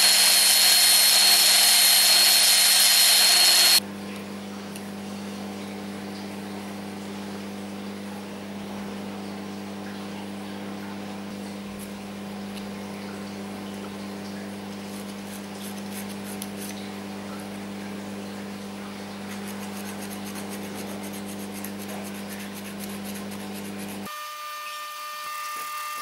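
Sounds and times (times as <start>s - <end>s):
wood being sanded by hand: 0.0s - 3.8s, 19.3s - 24.1s
low machine hum: 0.0s - 24.1s.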